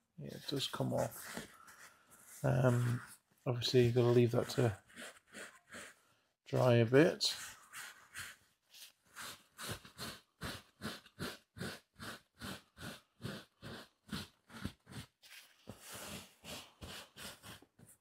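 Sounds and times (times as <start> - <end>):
tissue rubbing on leather: 7.4 - 17.6.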